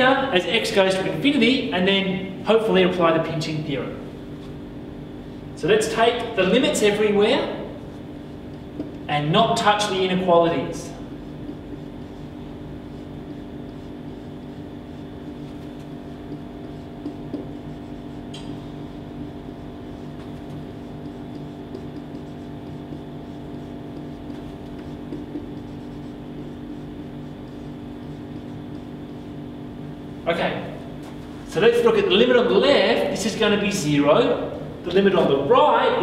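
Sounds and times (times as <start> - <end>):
low mechanical hum: 0.0 - 36.0
whiteboard marker writing: 5.2 - 31.8.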